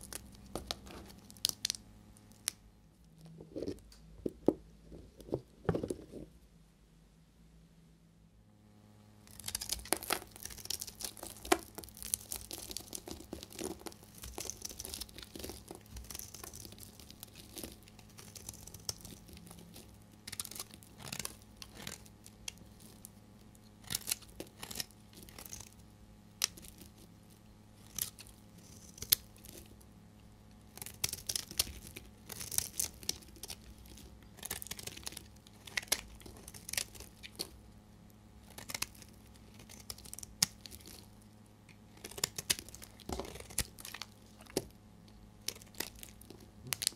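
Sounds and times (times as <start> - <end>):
knife shaving soap: 9.3 - 29.8, 30.5 - 46.9.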